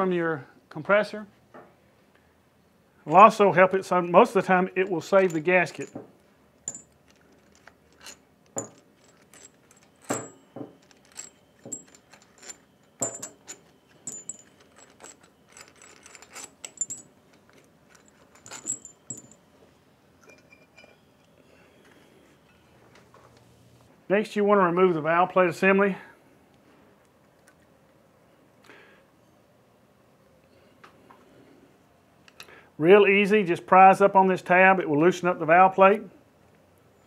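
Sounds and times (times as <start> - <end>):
metal bolts clicking and clinking: 3.1 - 19.6, 20.2 - 21.4.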